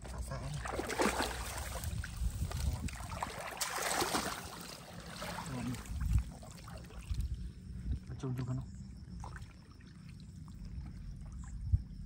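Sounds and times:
water splashing and trickling: 0.0 - 12.0.

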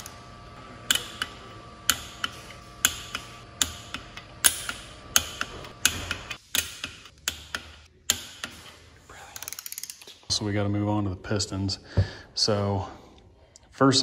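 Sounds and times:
torque wrench clicking: 1.9 - 8.6, 9.4 - 10.2.

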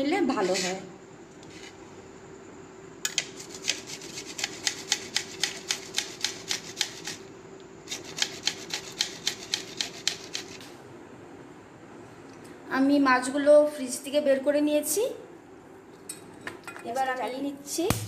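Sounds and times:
faint steady hum: 0.0 - 18.0
grating on metal grater: 3.4 - 7.2, 7.9 - 10.6.

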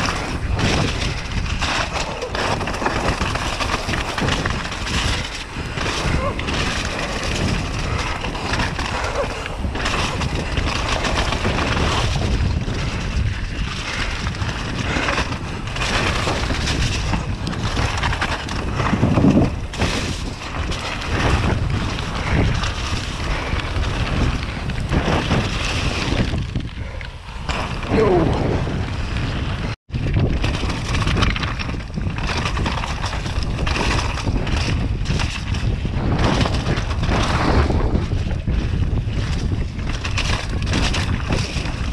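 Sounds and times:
bike rattling and knocking: 0.0 - 41.9
tyres rolling on gravel: 0.0 - 41.9
wind buffeting microphone: 0.0 - 41.9.

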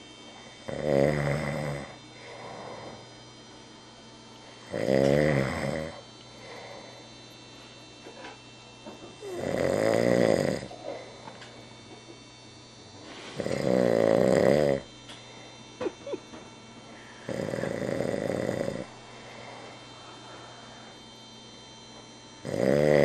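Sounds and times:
man snoring: 0.6 - 3.0, 4.6 - 7.0, 9.2 - 11.2, 13.4 - 14.9, 17.2 - 18.9, 22.4 - 23.0.

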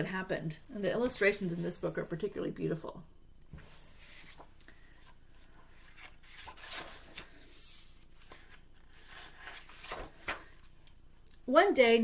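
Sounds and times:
page turning swishes: 3.5 - 10.9
book pages rustling: 3.5 - 11.0.

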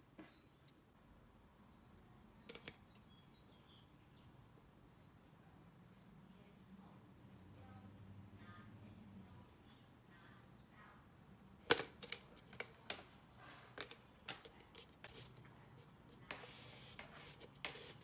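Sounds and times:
plastic tub clicking and cracking: 2.4 - 3.0, 11.6 - 13.1, 13.8 - 15.3.

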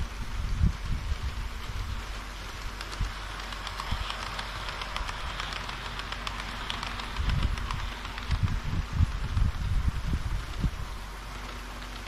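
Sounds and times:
model train wheels rolling: 0.0 - 12.0
clicks over rail joints: 2.4 - 12.0.

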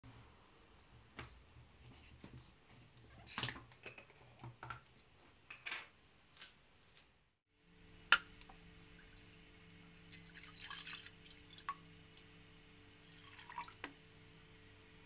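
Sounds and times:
milk pouring into a saucepan: 9.0 - 11.8, 13.0 - 14.0.

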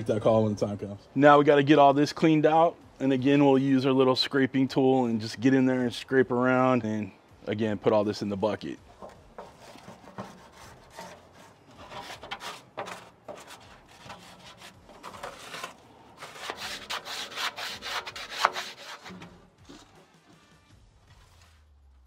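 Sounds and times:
plastic trowel scraping grease: 8.9 - 20.0.

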